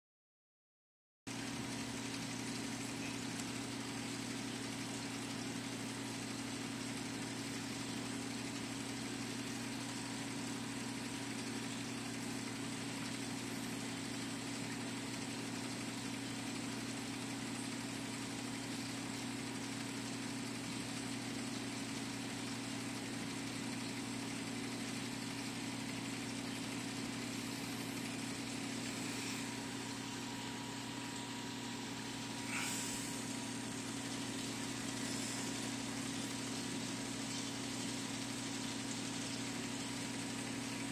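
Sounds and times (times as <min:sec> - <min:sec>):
low electrical hum: 0:01.3 - 0:40.9
even hiss: 0:26.9 - 0:31.1, 0:31.8 - 0:40.8.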